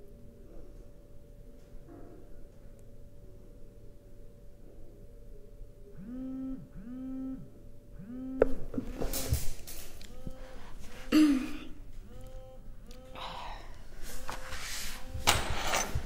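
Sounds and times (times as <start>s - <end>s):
phone vibrating on a desk: 5.9s - 9.4s, 12.0s - 13.2s.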